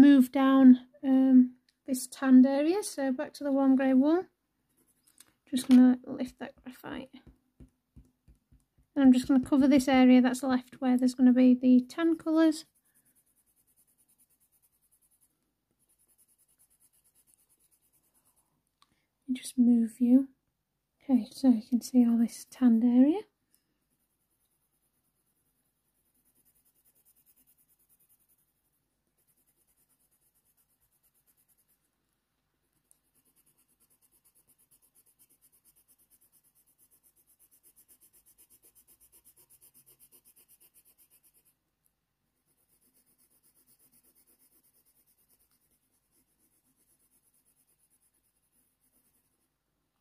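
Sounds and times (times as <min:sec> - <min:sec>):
pencil scratching on paper: 0:02.2 - 0:18.6, 0:21.2 - 0:41.6, 0:42.4 - 0:49.6.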